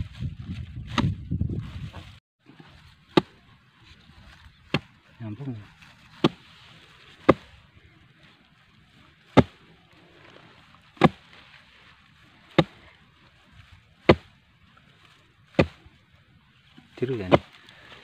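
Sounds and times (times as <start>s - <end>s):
metal bar striking dry soil: 6.2s - 7.6s, 9.3s - 11.6s, 12.4s - 13.0s, 14.0s - 14.4s.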